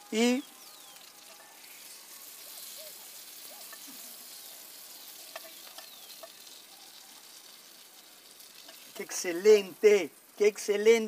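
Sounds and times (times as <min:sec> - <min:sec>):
food sizzling in a pan: 0:00.0 - 0:11.0
metal tongs clicking on pan: 0:03.6 - 0:03.9, 0:08.6 - 0:09.2.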